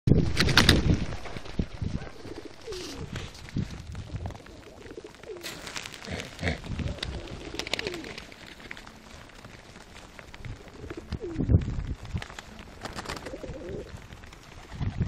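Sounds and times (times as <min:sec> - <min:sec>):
pigeons cooing: 0:02.0 - 0:03.3, 0:04.1 - 0:09.2, 0:10.5 - 0:11.5, 0:12.5 - 0:14.0.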